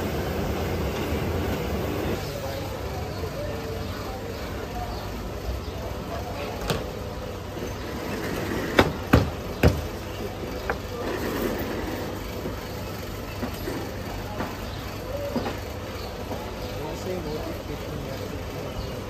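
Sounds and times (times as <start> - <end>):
street background noise: 0.0 - 19.0
sharp knocks: 8.8 - 9.9.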